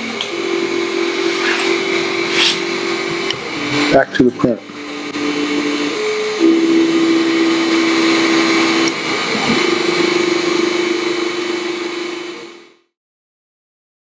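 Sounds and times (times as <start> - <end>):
stepper motor whine: 0.0 - 4.0, 4.7 - 12.8
steady hiss: 1.0 - 3.2.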